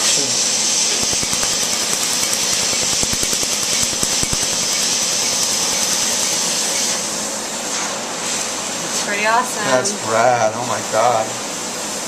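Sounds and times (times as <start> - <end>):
laser snapping pulses: 0.9 - 7.1.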